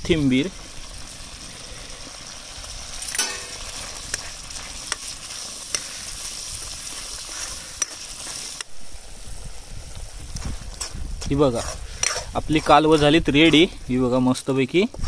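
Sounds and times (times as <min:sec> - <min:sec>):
food sizzling in a pan: 0:00.0 - 0:14.7
utensil stirring and clicking on pan: 0:03.0 - 0:08.7, 0:10.7 - 0:13.7.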